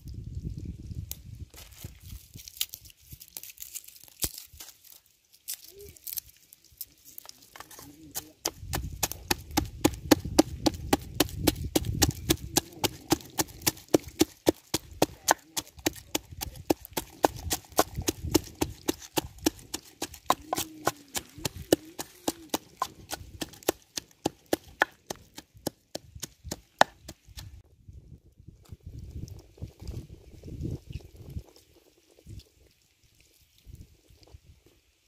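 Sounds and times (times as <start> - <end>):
pestle pounding in a mortar: 8.1 - 27.5.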